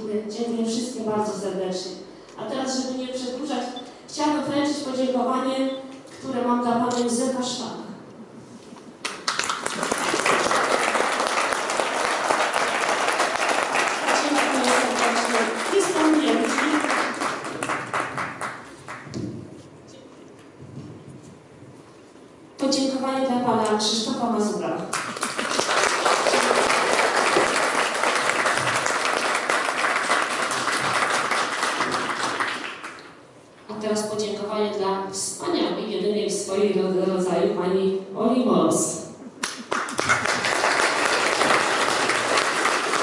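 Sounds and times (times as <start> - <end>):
audience applauding: 9.0 - 19.1, 24.9 - 33.0, 39.4 - 43.0
crowd clapping: 9.0 - 19.2, 24.9 - 33.2, 39.4 - 43.0.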